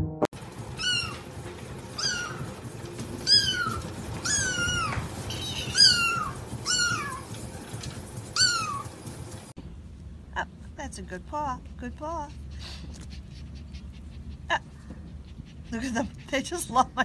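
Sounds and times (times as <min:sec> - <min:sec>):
kitten mewing: 0:00.8 - 0:01.2, 0:02.0 - 0:02.4, 0:05.7 - 0:07.2.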